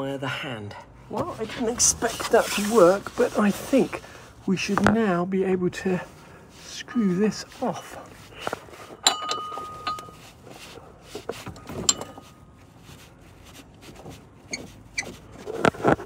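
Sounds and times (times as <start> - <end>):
metal tools clinking on metal: 7.7 - 10.4, 11.5 - 12.4.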